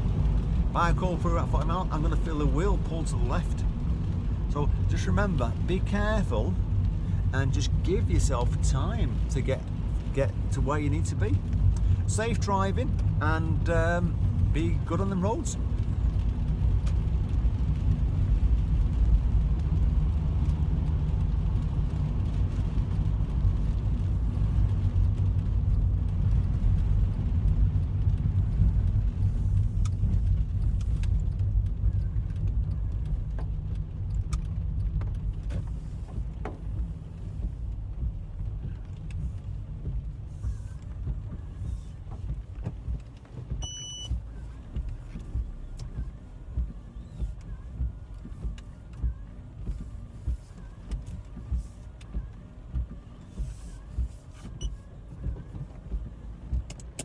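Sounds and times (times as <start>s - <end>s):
car driving on wet road: 0.0s - 57.0s
short high beep: 43.6s - 44.1s.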